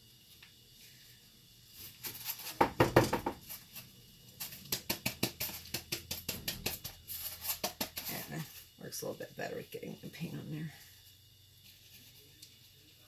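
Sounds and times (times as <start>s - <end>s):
foam board knocking on table: 2.5s - 3.5s.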